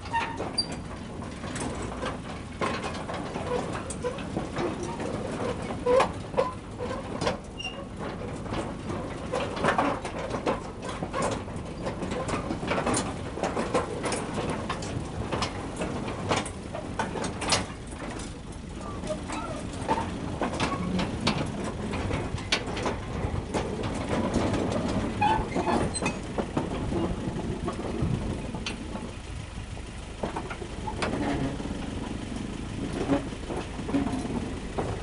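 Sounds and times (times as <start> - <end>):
clanks and knocks: 0.0 - 35.0
tipper wagons rolling on track: 0.0 - 35.0
running gear squeaks: 0.1 - 0.9, 7.6 - 7.9, 18.9 - 20.1, 25.2 - 26.2.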